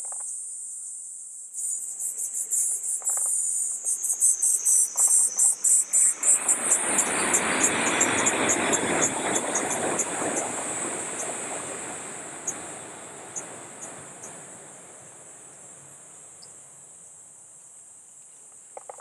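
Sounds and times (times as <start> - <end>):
insects chirping: 0.0 - 19.0
train passing: 4.3 - 17.5.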